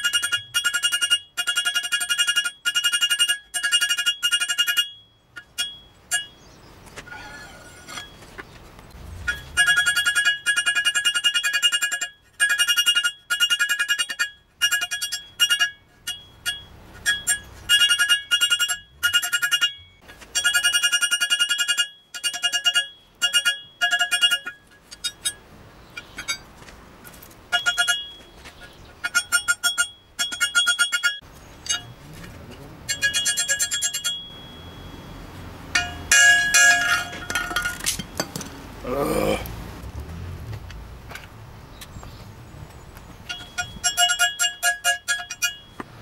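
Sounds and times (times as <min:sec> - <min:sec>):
hammer ringing on steel anvil: 0:32.9 - 0:38.3.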